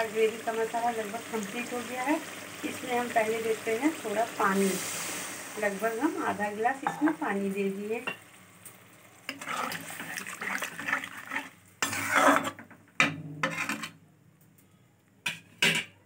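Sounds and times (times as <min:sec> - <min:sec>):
spoon scraping and clinking pan: 0:09.3 - 0:14.0.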